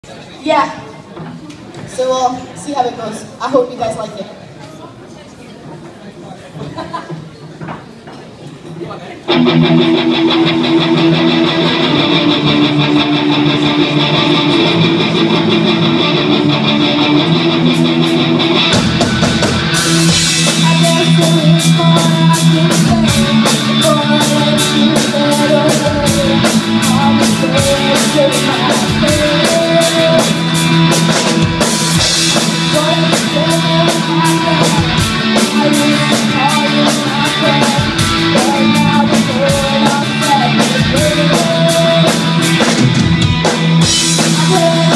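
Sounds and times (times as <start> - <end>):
bass guitar: 9.3 - 44.9
electric guitars: 9.3 - 44.9
drum kit with cymbal beat: 18.2 - 44.9.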